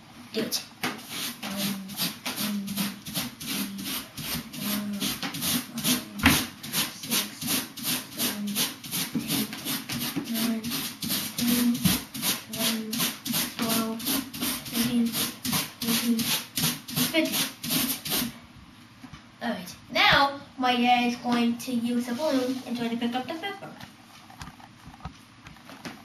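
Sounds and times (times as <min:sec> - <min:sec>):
balloon rubbed on hair: 0:00.9 - 0:18.4, 0:22.0 - 0:23.0.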